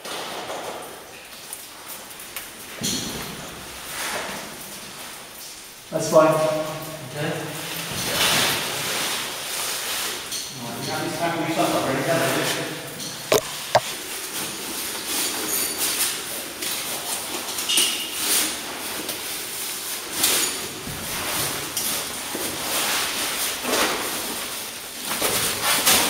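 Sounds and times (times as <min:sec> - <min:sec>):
sharp clicks: 0:13.3 - 0:13.8.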